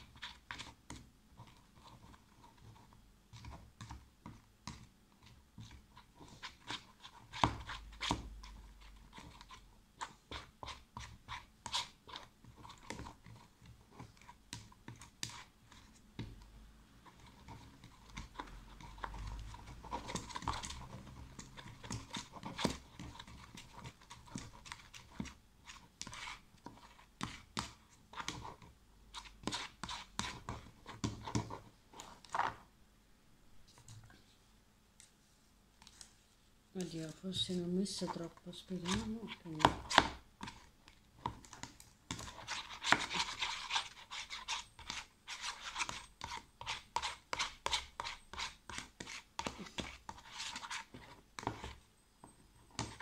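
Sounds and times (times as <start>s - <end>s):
spoon scraping plastic tub: 17.0s - 32.6s, 37.1s - 51.8s.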